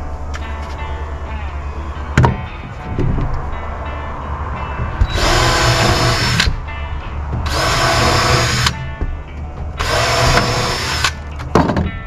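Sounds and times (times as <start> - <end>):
power drill driving screws: 5.1 - 6.6, 7.5 - 8.8, 9.8 - 11.2.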